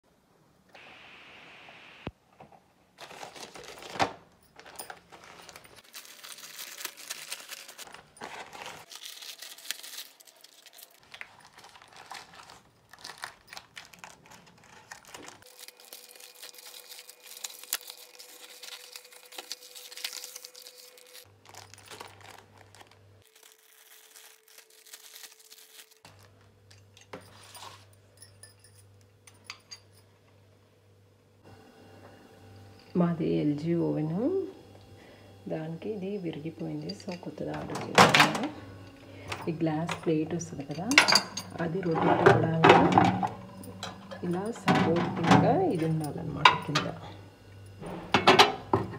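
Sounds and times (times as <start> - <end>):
loud plastic tear: 3.0 - 26.2
plastic bag rustling and crackling: 3.0 - 26.5.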